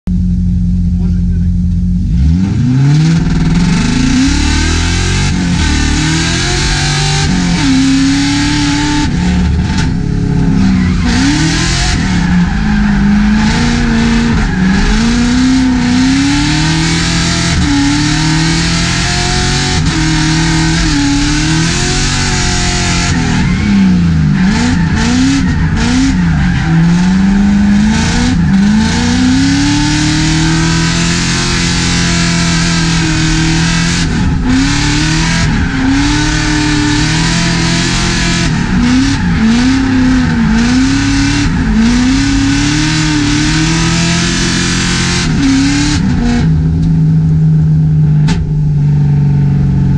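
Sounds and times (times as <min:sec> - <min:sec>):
car engine revving hard: 0:02.0 - 0:48.6
tyre squeal: 0:06.6 - 0:44.6.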